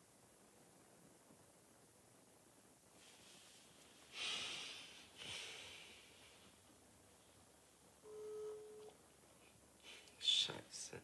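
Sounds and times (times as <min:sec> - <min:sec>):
phone ringing tone beep: 0:08.0 - 0:09.0.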